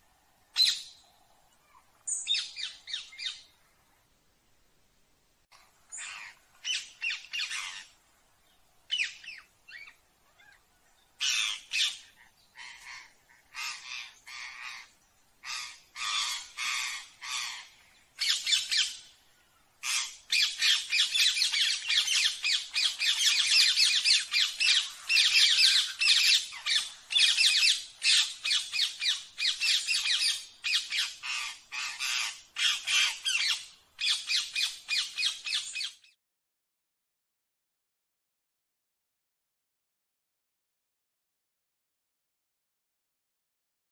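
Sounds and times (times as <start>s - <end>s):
parakeet squawking and screeching: 6.0s - 7.9s, 11.2s - 11.9s, 15.4s - 18.9s, 19.8s - 35.9s.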